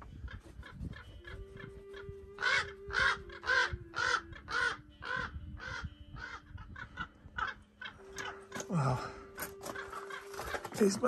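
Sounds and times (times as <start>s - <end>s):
corvid scolding calls: 2.0s - 8.7s.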